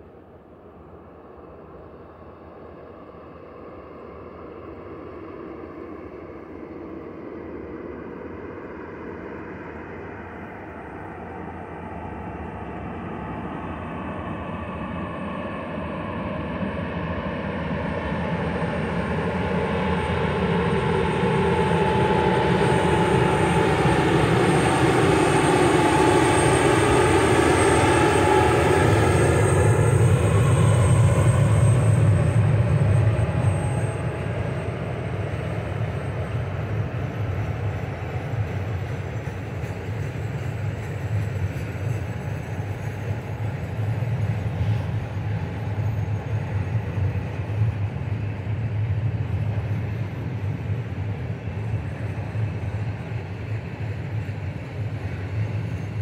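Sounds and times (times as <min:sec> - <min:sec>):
diesel locomotive engine passing: 0:18.3 - 0:56.0.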